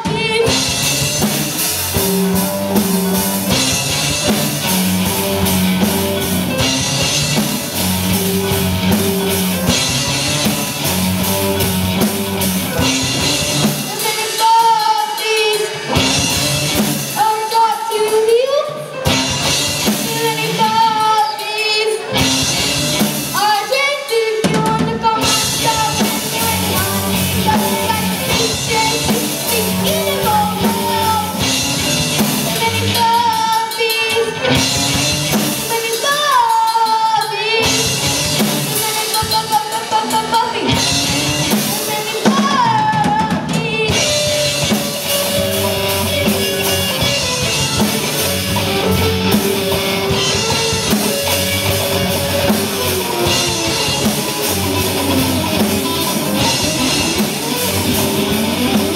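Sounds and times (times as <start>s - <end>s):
boy singing into a microphone: 0.0s - 1.2s, 13.7s - 16.0s, 17.1s - 19.1s, 19.8s - 34.6s, 35.2s - 45.2s
drum kit: 0.0s - 58.9s
electric guitar: 0.0s - 58.9s.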